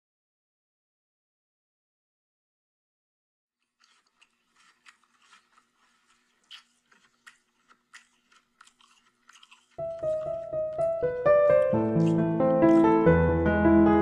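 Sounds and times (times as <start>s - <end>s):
person chewing with crunching bites: 3.6s - 13.0s
piano: 9.8s - 14.0s.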